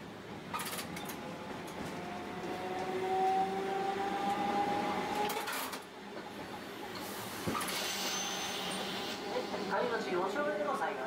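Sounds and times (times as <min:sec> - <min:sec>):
tram running noise: 0:00.0 - 0:11.0
tram motor whine: 0:01.1 - 0:05.4
high wheel squeal: 0:07.8 - 0:09.1.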